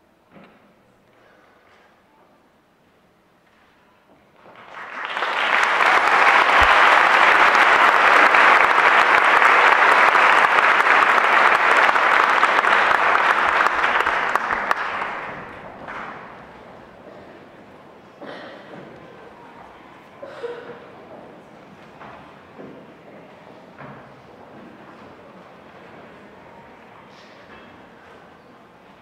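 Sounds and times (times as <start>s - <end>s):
audience applauding: 4.4s - 16.8s.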